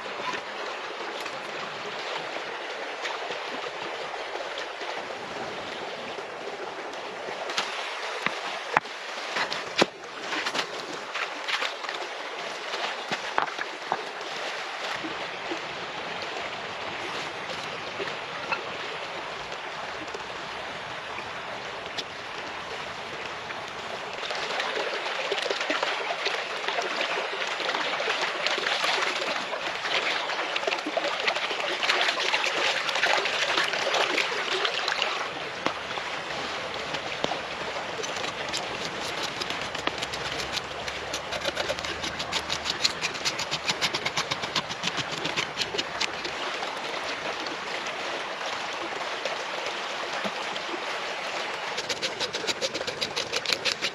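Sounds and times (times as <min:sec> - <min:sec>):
stream running over stones: 0:00.0 - 0:53.9
knife strokes on wooden board: 0:38.0 - 0:46.3, 0:51.8 - 0:53.9.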